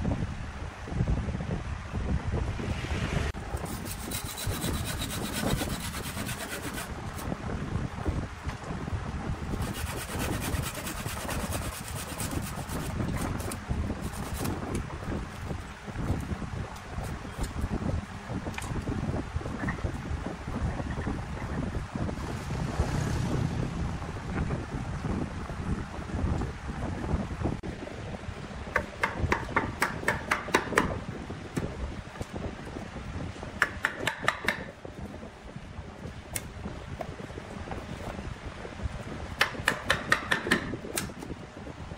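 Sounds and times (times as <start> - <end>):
low steady rumble: 0.0 - 41.9
wood lathe rumbling: 3.4 - 7.0, 9.6 - 12.9
hand saw rasping through wood: 3.6 - 6.9, 9.6 - 14.6
chisel cutting wood: 3.7 - 6.9, 9.6 - 12.9
sharp wooden knocks: 28.8 - 31.0, 33.6 - 34.7, 39.4 - 40.8.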